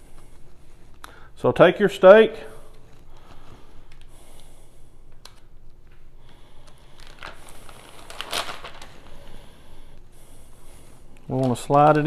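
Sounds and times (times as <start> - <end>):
plastic bag crinkling: 6.6 - 9.3, 11.2 - 12.0.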